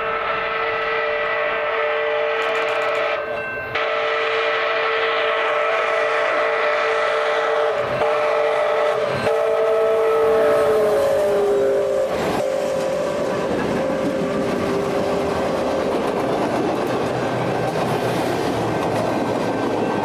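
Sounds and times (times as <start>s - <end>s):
steam locomotive chime whistle: 0.0s - 15.7s.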